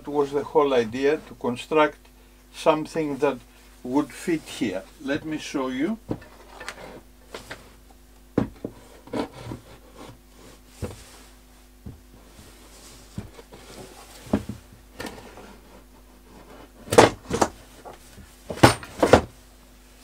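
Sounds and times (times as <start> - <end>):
wooden knocks and clunks: 8.3 - 10.2, 10.8 - 11.1, 11.8 - 12.2, 13.1 - 13.6, 14.2 - 15.2, 16.9 - 19.4.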